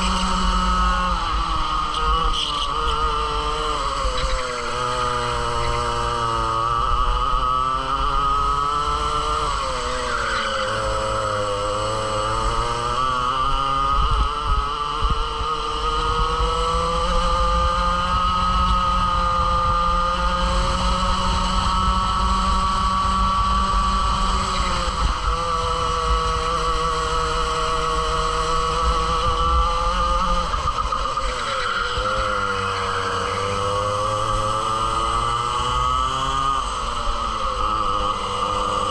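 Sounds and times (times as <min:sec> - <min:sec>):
kart engine at racing revs: 0:00.0 - 0:38.9
low wind rumble on microphone: 0:13.3 - 0:31.1.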